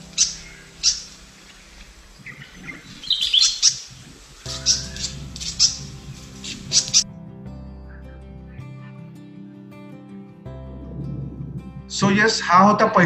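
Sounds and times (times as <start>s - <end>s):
bird chirping: 0.0s - 7.0s.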